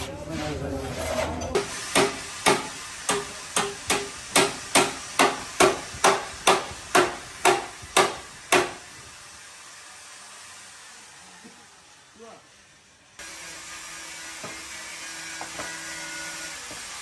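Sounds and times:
hammer striking steel: 0:01.5 - 0:08.8.

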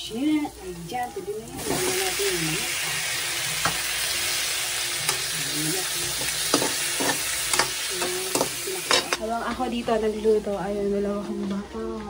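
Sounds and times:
food sizzling in hot oil: 0:00.0 - 0:09.3
metal spatula scraping wok: 0:06.0 - 0:09.2.

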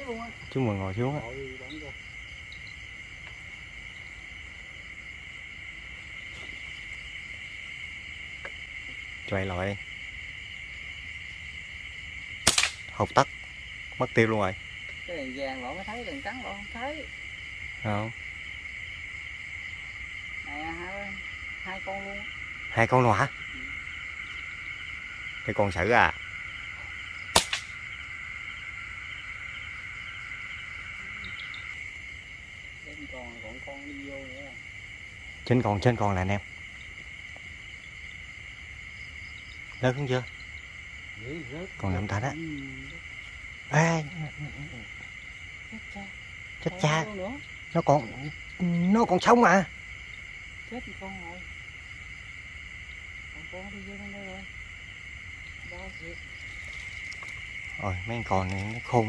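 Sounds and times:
crickets trilling: 0:00.0 - 0:59.0
night insects chirring: 0:00.0 - 0:59.0
sharp gunshot: 0:12.4 - 0:12.9, 0:27.3 - 0:27.8.

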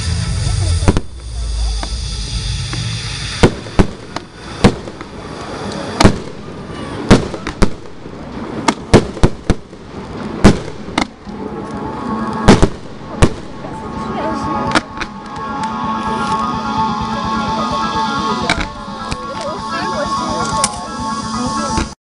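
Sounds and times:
firework shells bursting: 0:02.7 - 0:11.4, 0:12.4 - 0:13.6.

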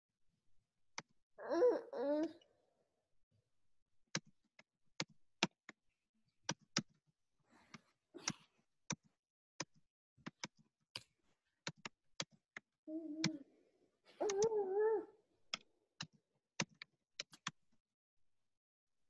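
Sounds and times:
keyboard typing clicks: 0:14.2 - 0:14.5.

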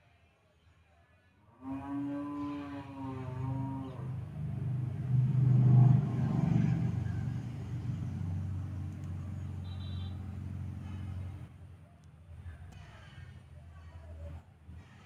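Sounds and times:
vehicle engine rumble: 0:03.2 - 0:15.0.

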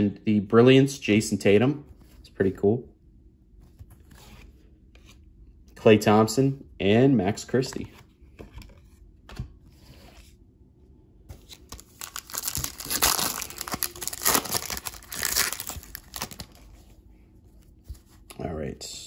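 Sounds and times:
foil wrapper crinkling and tearing: 0:11.5 - 0:16.7.

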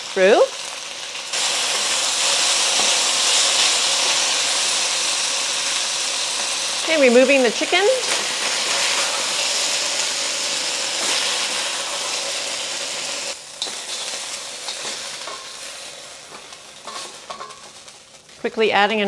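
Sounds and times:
chicken sizzling in a wok: 0:00.0 - 0:18.9
metal spatula scraping wok: 0:13.6 - 0:17.9.

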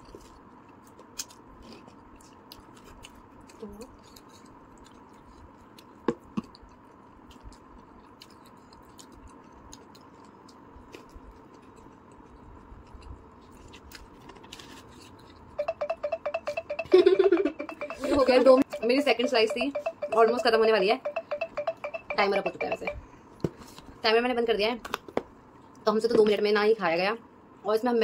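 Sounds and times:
person chewing food: 0:00.0 - 0:15.6.

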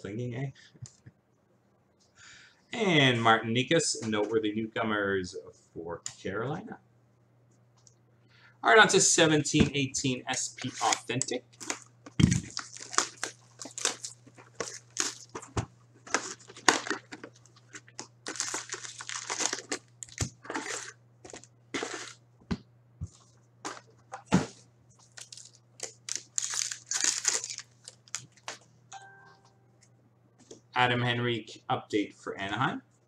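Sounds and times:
card packs tearing open: 0:10.6 - 0:22.2, 0:25.0 - 0:28.6
wrappers crinkling: 0:10.6 - 0:22.2, 0:25.0 - 0:28.6.

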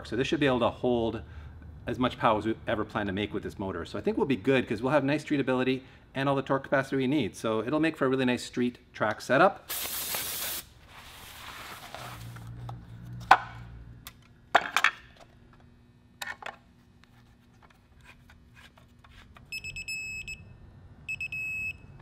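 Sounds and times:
hiss: 0:09.7 - 0:10.7.

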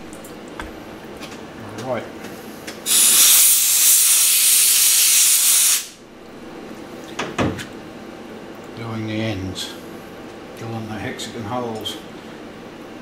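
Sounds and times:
compressed-air blow gun hissing: 0:02.8 - 0:06.0.

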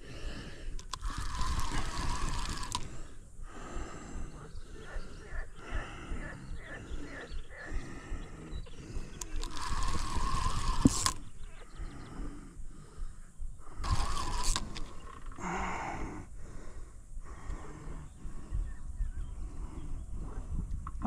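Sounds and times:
fishing reel running: 0:00.1 - 0:03.2, 0:09.0 - 0:11.4, 0:13.6 - 0:15.8.

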